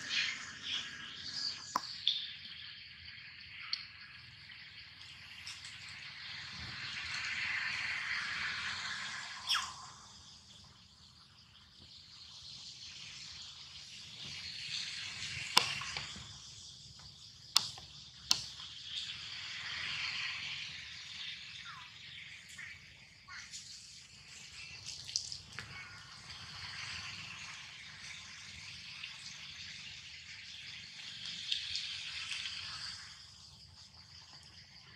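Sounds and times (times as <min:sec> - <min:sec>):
high insect hiss: 0:00.0 - 0:34.9
sharp clicks: 0:15.5 - 0:16.2, 0:17.0 - 0:18.8.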